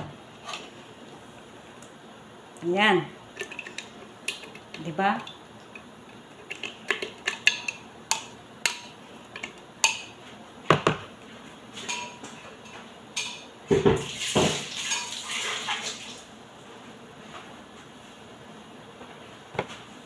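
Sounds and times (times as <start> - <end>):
dishes and utensils clinking: 11.8 - 15.3.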